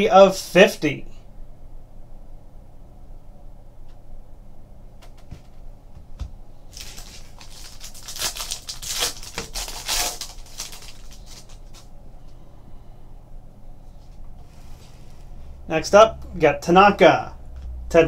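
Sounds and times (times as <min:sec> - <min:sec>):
foil wrapper tearing and crinkling: 0:06.7 - 0:11.9.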